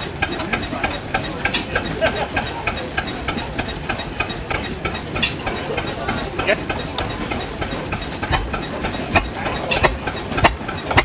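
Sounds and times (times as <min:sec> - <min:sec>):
diesel engine knocking: 0:00.0 - 0:11.0.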